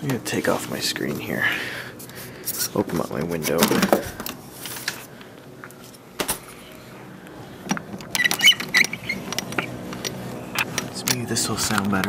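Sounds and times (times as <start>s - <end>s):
window scraping: 7.9s - 11.0s
window screen squeaking: 8.0s - 11.5s.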